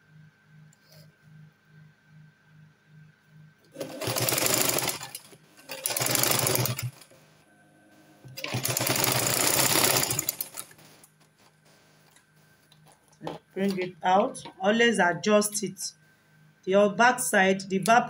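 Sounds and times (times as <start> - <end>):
sewing machine stitching: 3.8 - 7.1, 8.3 - 11.0.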